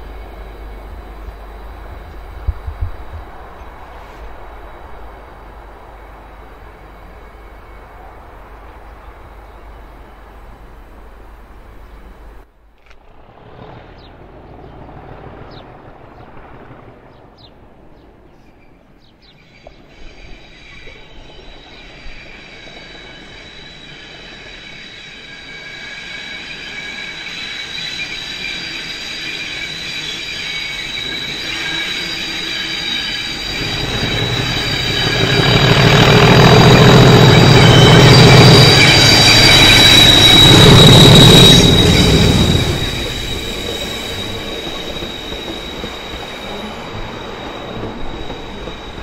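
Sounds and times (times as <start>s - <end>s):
heavy train rumble: 0.0s - 49.0s
ringing tones from rails: 19.6s - 49.0s.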